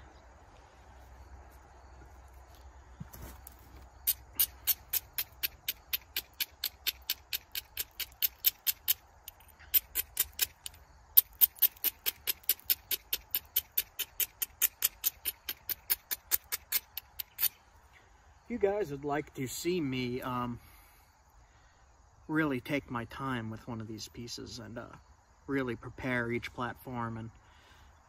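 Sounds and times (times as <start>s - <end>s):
tool tapping on flint: 4.0s - 17.6s.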